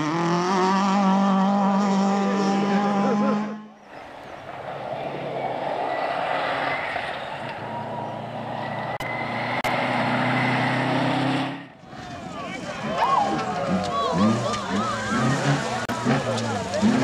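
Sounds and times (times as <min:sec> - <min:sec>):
rally car engine passing: 0:00.0 - 0:17.0
tyres on gravel rushing: 0:08.7 - 0:17.0.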